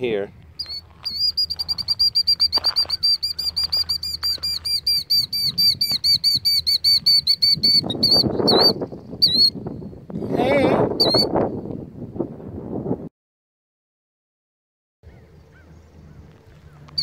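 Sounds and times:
bird alarm call trill: 0:00.6 - 0:09.6, 0:11.0 - 0:11.3, 0:15.0 - 0:17.0.

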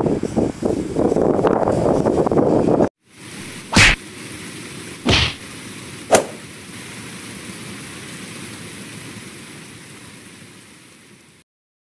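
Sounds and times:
outdoor hiss: 0:03.0 - 0:11.4
short loud bursts: 0:05.0 - 0:05.4, 0:06.1 - 0:06.5.

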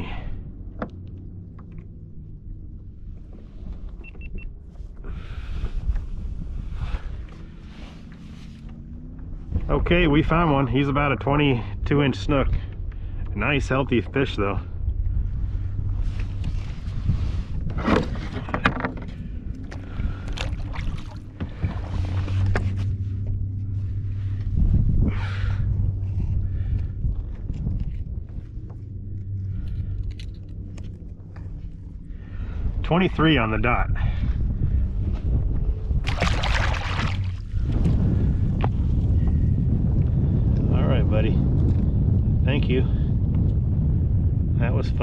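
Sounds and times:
wind rumble on microphone: 0:00.0 - 0:45.0
water sloshing against kayak: 0:16.2 - 0:24.3, 0:36.0 - 0:38.0
knocks and splashes on hull: 0:17.7 - 0:22.8, 0:36.0 - 0:38.0.

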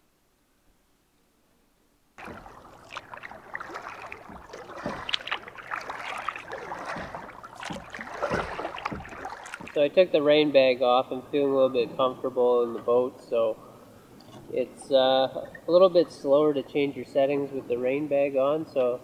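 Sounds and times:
paddle splashing in water: 0:02.2 - 0:10.7.

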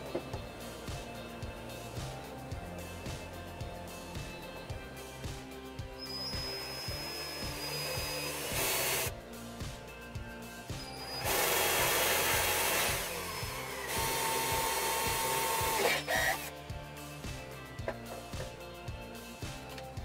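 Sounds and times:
music with a steady beat: 0:00.0 - 0:20.0
cordless drill boring into wood: 0:06.0 - 0:09.1, 0:11.0 - 0:16.5.

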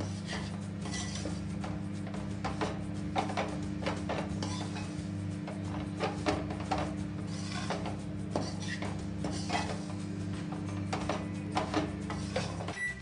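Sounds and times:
microwave oven humming: 0:00.0 - 0:13.0
spoon scraping and clinking on a pan: 0:00.1 - 0:01.5, 0:04.3 - 0:04.9.

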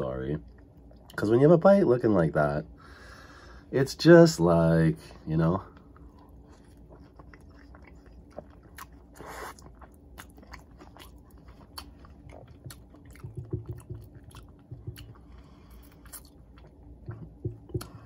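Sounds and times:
close-miked chewing: 0:05.6 - 0:18.0.

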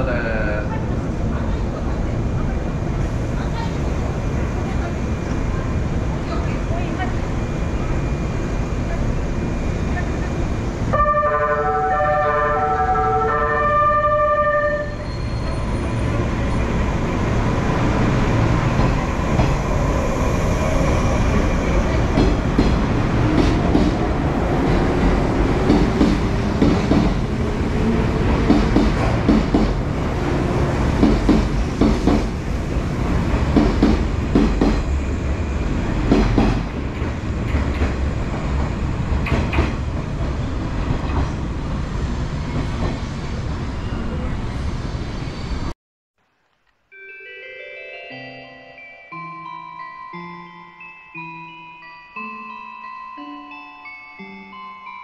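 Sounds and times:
electric train passing: 0:00.0 - 0:45.7, 0:47.0 - 0:55.0
train horn playing melody: 0:10.9 - 0:15.1.

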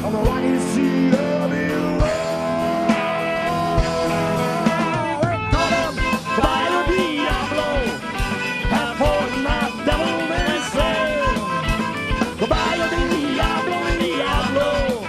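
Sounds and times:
electric guitar lead: 0:00.0 - 0:15.0
rock band playing: 0:00.0 - 0:15.0.

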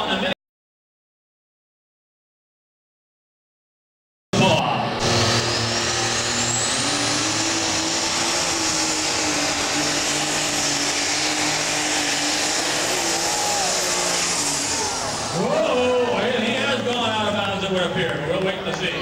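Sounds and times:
turbocharger whine: 0:04.4 - 0:17.7
tractor engine at full throttle: 0:04.4 - 0:18.9.

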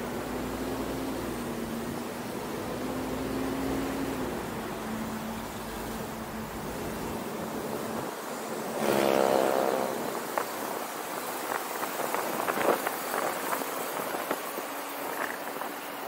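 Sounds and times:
passing vehicle engine: 0:00.0 - 0:10.5
road and wind noise: 0:00.0 - 0:16.0.

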